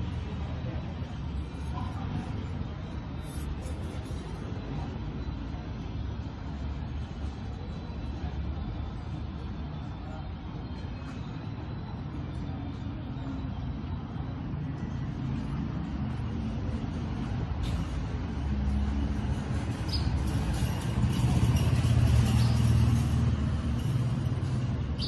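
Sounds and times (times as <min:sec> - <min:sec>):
vehicle engine rumble: 0:00.0 - 0:25.0.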